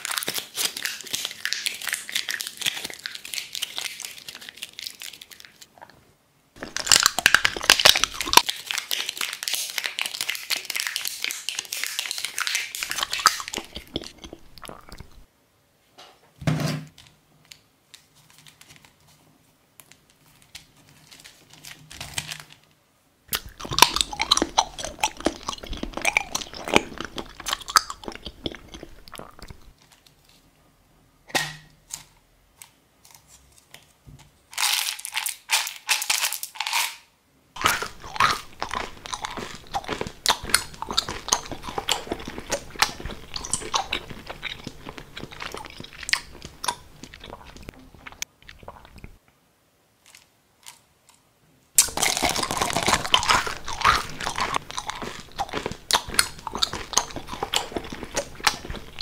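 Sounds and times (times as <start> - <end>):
plastic crinkling and crunching: 0.0 - 5.8, 6.6 - 15.3, 19.8 - 22.7, 23.3 - 30.4, 37.6 - 49.1, 51.8 - 59.0.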